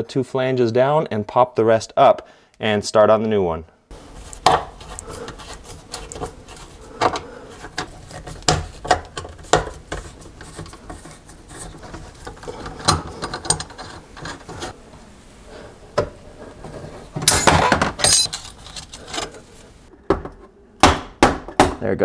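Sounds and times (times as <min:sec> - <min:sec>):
metal clatter: 0:17.2 - 0:18.7.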